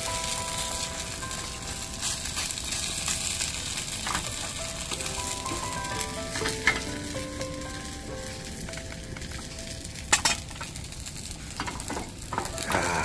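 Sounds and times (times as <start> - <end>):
pancakes sizzling in oil: 0.0 - 13.0
soft background music: 0.0 - 13.0
utensil tapping pan: 2.0 - 7.6.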